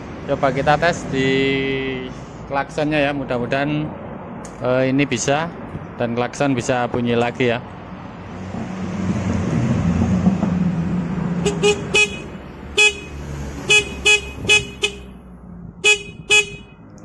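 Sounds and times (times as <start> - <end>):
motorcycle horn short beeps: 11.4 - 13.1, 13.7 - 15.2, 15.8 - 16.8.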